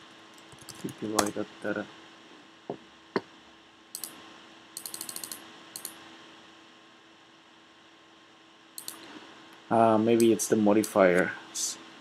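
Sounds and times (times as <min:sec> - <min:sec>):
faint steady hum: 0:00.0 - 0:12.0
computer keyboard typing: 0:00.4 - 0:01.3, 0:04.8 - 0:06.0, 0:08.8 - 0:09.0.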